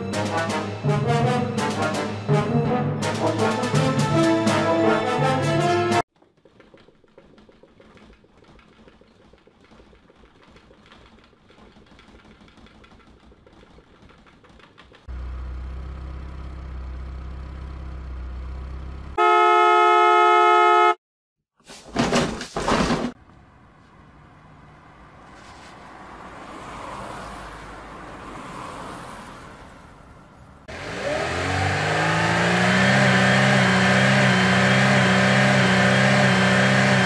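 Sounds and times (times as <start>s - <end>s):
car horn: 19.2s - 21.0s.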